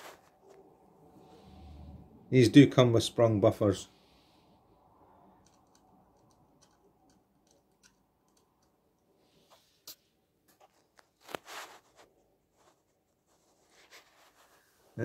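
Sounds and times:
short rustle: 9.4 - 15.0.

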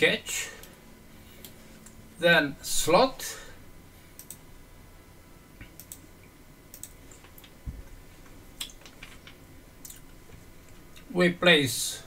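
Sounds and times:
computer mouse clicks: 4.2 - 4.4, 5.6 - 6.0, 6.7 - 7.6.

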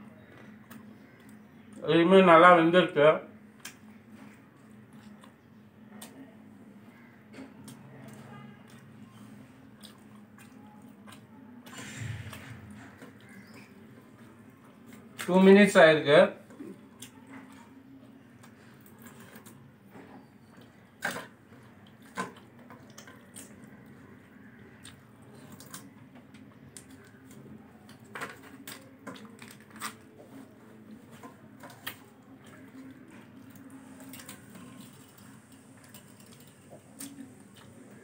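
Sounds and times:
person chewing: 4.6 - 5.4, 7.6 - 15.3.

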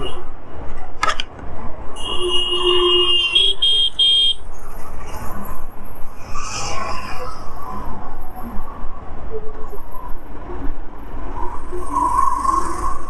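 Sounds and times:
road and wind noise: 0.0 - 13.0
vehicle horn honking: 2.0 - 4.4.

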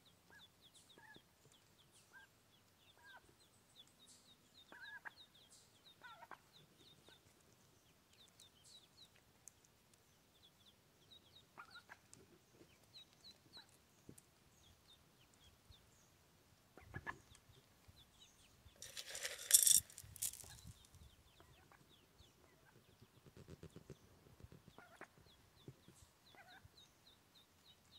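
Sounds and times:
ducklings peeping: 10.3 - 13.7, 24.7 - 27.2.

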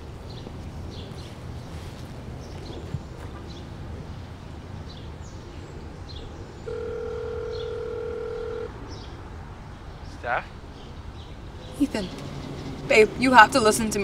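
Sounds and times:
telephone ringback tone: 6.7 - 8.7.

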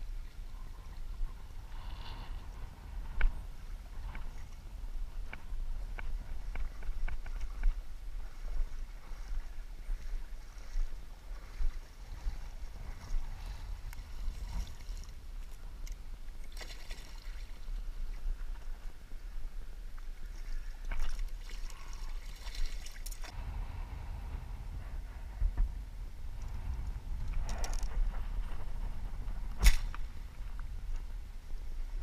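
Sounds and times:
wind rumble on microphone: 0.0 - 32.0
fish splashing in water: 16.4 - 17.6.

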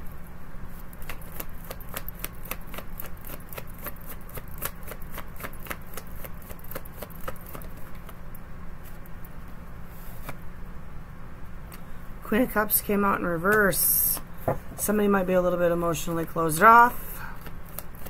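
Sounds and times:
cards being shuffled: 0.8 - 8.2, 9.9 - 10.4, 17.4 - 18.0.

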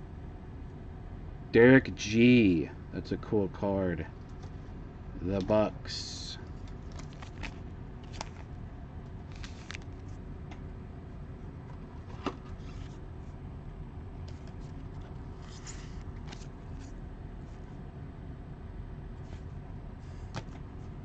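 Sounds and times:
low room rumble: 0.0 - 21.0
plastic sleeve rustling: 6.5 - 8.5, 9.2 - 10.2.

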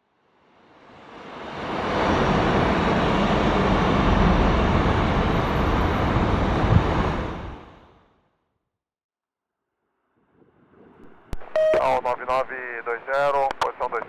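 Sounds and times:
jet aircraft roar: 0.9 - 7.9.

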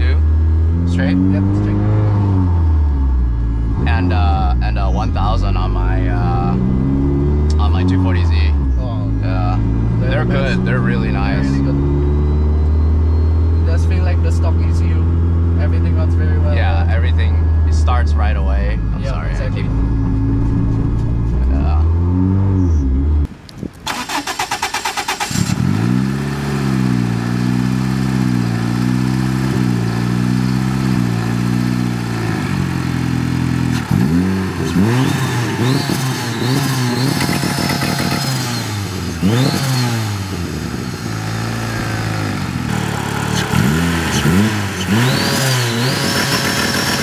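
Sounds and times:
car engine idling and revving: 0.0 - 47.0
car engine starter cranking: 23.8 - 25.7.

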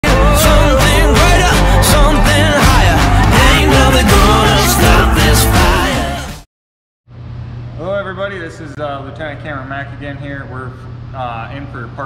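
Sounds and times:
melody over steady beat: 0.0 - 6.4.

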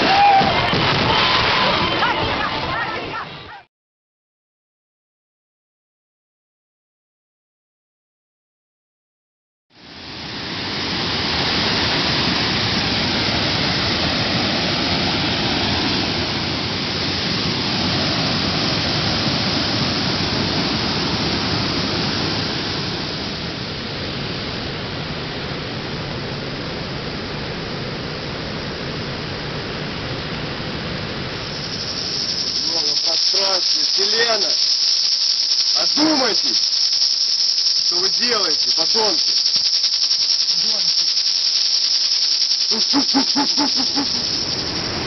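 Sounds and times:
loud steady rushing noise: 9.8 - 45.0.

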